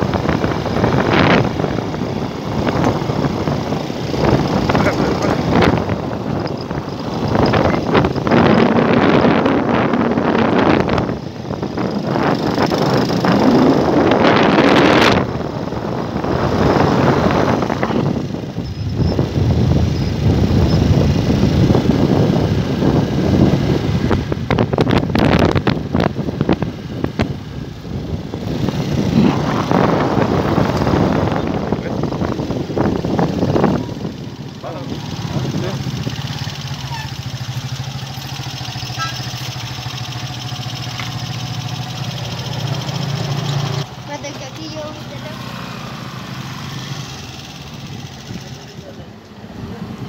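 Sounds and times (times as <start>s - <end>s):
small engine running: 0.0s - 24.1s, 28.0s - 50.0s
vehicle rumbling on dirt road: 0.0s - 50.0s
wind rushing over microphone: 0.0s - 50.0s.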